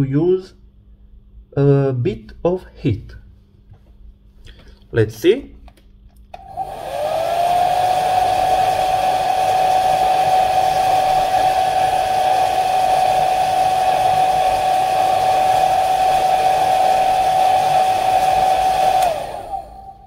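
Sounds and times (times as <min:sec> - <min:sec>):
hair dryer running: 0:06.3 - 0:20.0.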